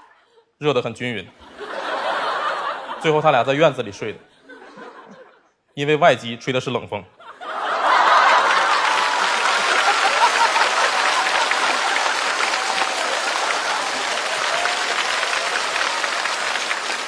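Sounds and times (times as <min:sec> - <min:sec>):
audience laughing: 0:01.4 - 0:03.7, 0:04.3 - 0:05.5, 0:07.2 - 0:17.0
audience clapping: 0:07.8 - 0:17.0.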